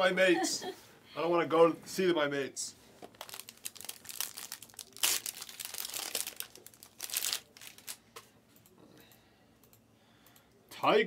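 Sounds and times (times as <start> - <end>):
faint rustling of cards: 2.7 - 8.4
foil wrapper crinkling and tearing: 3.1 - 8.0.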